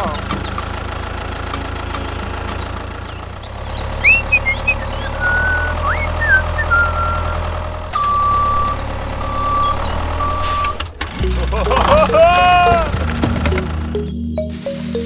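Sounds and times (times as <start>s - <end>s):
heavy vehicle engine droning: 0.0s - 15.0s
reversing alarm beeping: 4.1s - 10.9s.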